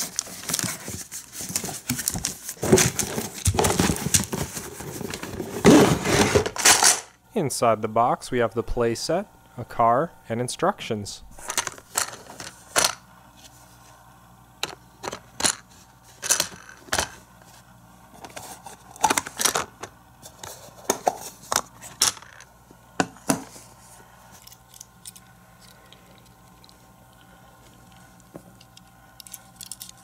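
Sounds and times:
plastic toy parts clicking: 28.6 - 30.0.

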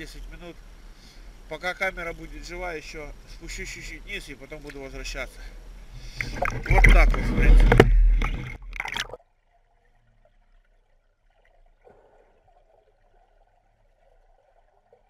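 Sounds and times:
faint underwater stirrings: 0.1 - 9.2
water splashing and gurgling: 5.8 - 15.0.

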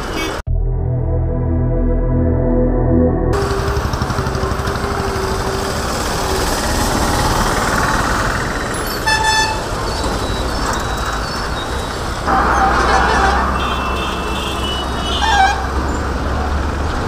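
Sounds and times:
busy road traffic: 0.0 - 0.4, 3.3 - 17.0
vehicle horn: 9.0 - 9.8, 12.3 - 15.9.

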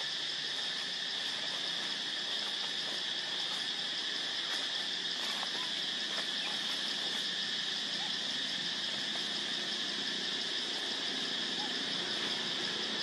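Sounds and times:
insect chorus drone: 0.0 - 13.0
faint chirps: 0.7 - 7.2.

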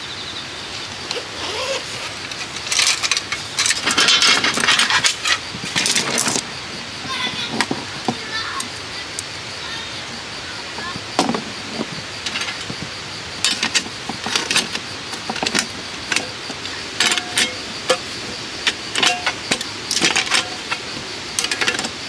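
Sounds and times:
steady background hiss: 0.0 - 22.0
camping gear clicks and knocks: 1.1 - 6.4, 10.9 - 22.0.

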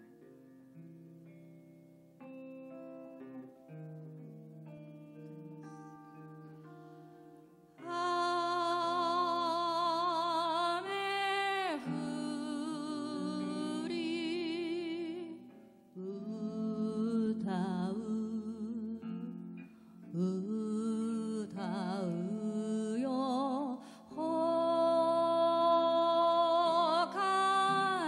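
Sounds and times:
guitar: 0.0 - 28.0
woman singing with vibrato: 7.8 - 28.0.

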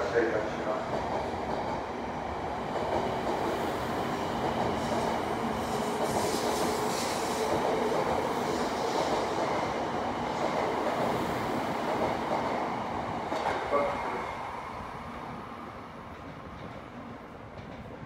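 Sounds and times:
train wheels rumbling on rail: 0.0 - 18.0
hissing rush: 4.8 - 9.4.

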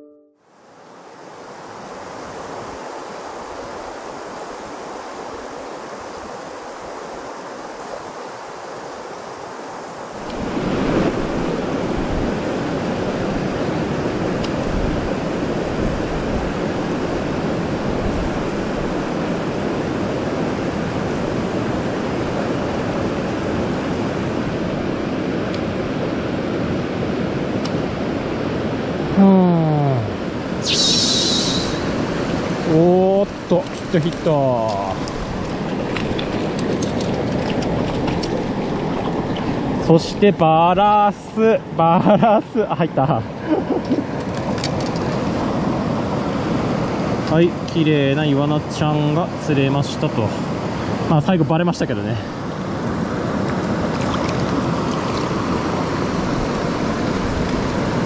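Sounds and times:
mountain stream rushing water: 0.5 - 58.0.

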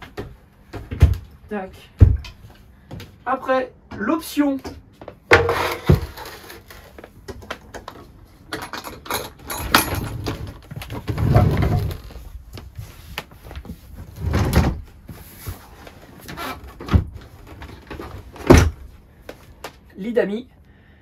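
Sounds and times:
frame scraping: 9.6 - 18.4.

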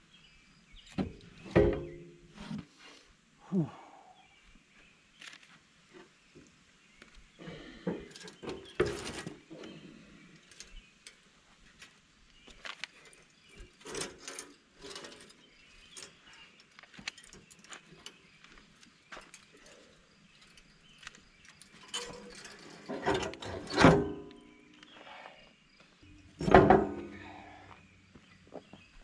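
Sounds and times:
heavy metal clunk: 1.0 - 2.5, 21.8 - 24.4, 26.4 - 27.5
metal knocks and scrapes: 1.0 - 2.7, 7.9 - 9.7, 13.0 - 16.4, 21.5 - 24.4, 26.3 - 27.3
man grunting: 3.4 - 4.0.

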